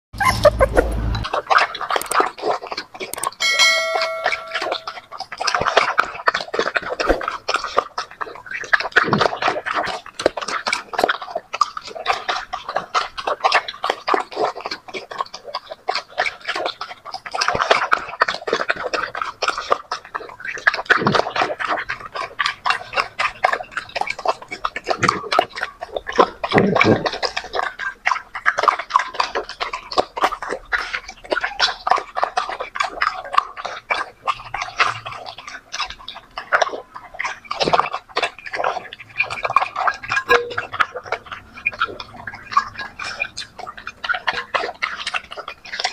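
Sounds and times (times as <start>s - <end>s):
puppies chewing and slurping: 0.2s - 45.9s.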